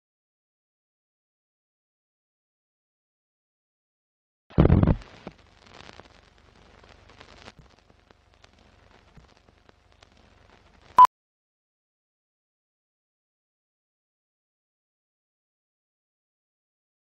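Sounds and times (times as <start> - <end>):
faint crackling: 4.5 - 11.1.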